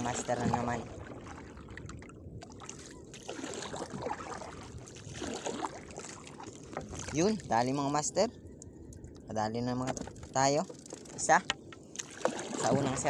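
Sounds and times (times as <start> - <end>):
wet line pulled from water: 0.0 - 7.6
water lapping and dripping: 0.0 - 9.3, 9.9 - 13.0.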